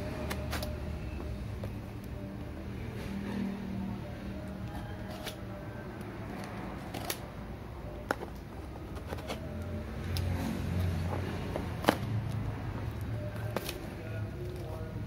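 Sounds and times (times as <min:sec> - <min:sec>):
knife cutting cardboard and tape: 0:05.0 - 0:05.4, 0:06.8 - 0:07.3, 0:08.1 - 0:12.4.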